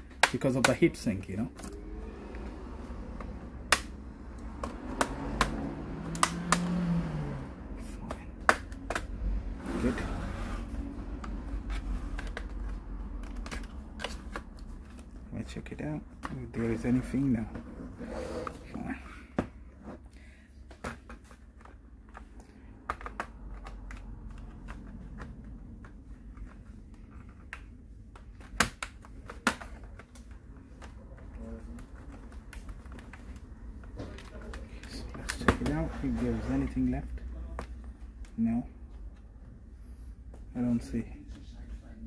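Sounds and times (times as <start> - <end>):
laptop keys clicking: 3.2 - 6.8, 22.1 - 30.2.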